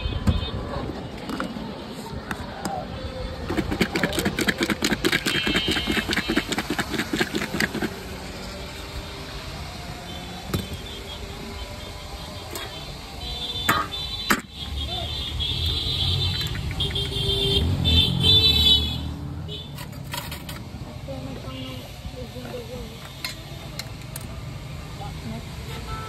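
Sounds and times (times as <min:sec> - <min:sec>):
rapid rattling knocking: 0:03.5 - 0:07.9
long high horn tone: 0:08.4 - 0:19.0, 0:25.6 - 0:26.0.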